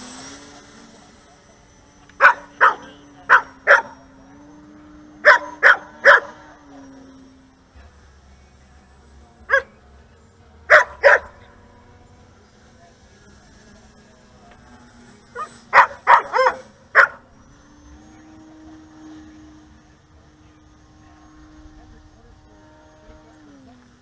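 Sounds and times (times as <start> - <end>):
dog barking: 2.2 - 4.0, 5.2 - 6.4, 9.5 - 9.7, 10.7 - 11.4, 15.4 - 17.2.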